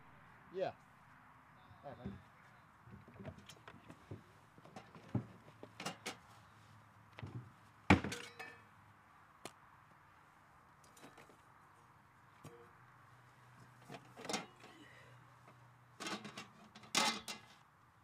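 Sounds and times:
metal pots clinking together: 8.1s - 8.6s, 14.2s - 14.7s, 16.0s - 17.4s.

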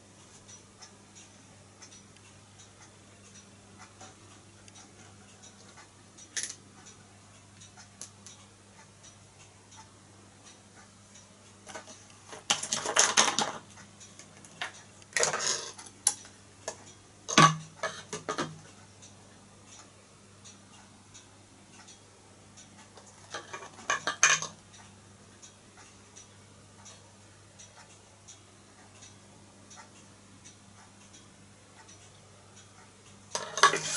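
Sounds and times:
faint steady ticking: 0.0s - 33.9s.

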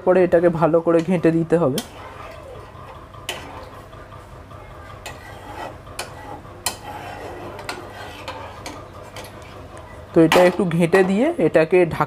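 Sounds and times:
steady low hum: 0.0s - 12.0s
spatula scraping pan: 0.9s - 4.0s, 4.9s - 11.3s.

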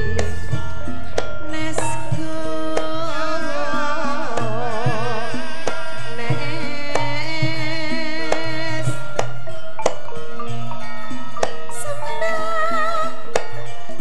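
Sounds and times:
metallophone notes: 0.0s - 14.0s
woman singing with vibrato: 0.0s - 14.0s.

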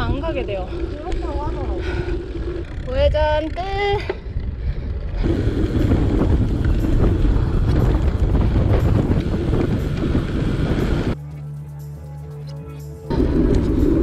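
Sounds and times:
wind on microphone: 0.0s - 11.2s
road bike road noise: 0.0s - 14.0s.

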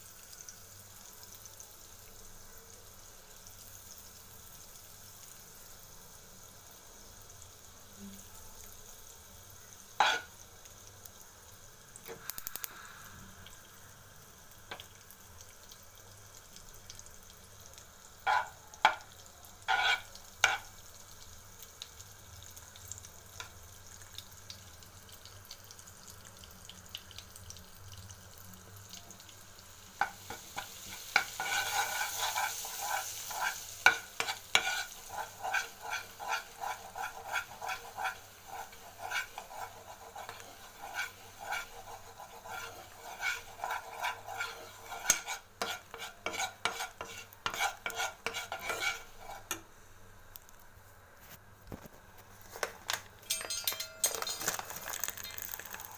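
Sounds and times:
butter sizzling in a pan: 0.0s - 50.7s, 52.2s - 55.9s
spoon scraping pan: 10.0s - 10.3s, 18.3s - 19.1s, 19.7s - 20.7s, 30.0s - 49.6s.

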